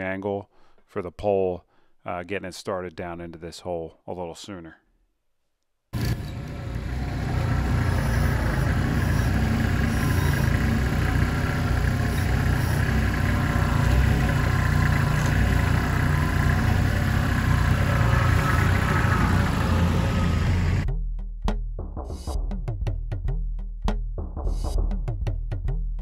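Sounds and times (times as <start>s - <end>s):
tractor diesel engine running: 6.0s - 20.8s.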